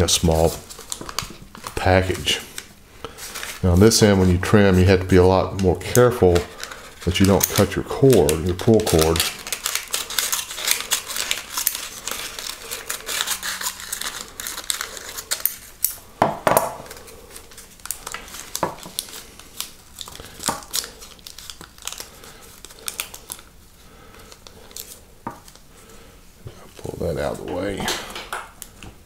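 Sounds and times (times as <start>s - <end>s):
paper crinkling and rustling: 0.0s - 15.9s, 16.7s - 25.7s
scissors cutting paper: 5.9s - 16.0s.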